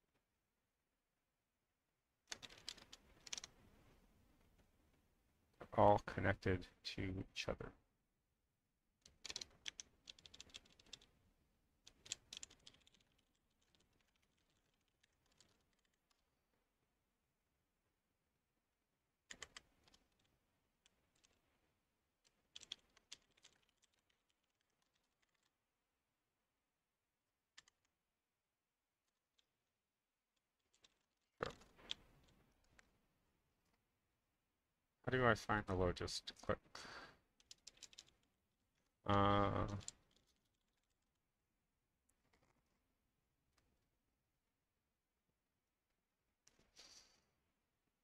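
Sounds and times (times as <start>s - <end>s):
computer keyboard typing: 2.3s - 3.5s, 9.0s - 11.1s, 11.8s - 16.2s, 19.3s - 20.3s, 22.2s - 25.5s, 37.4s - 38.2s.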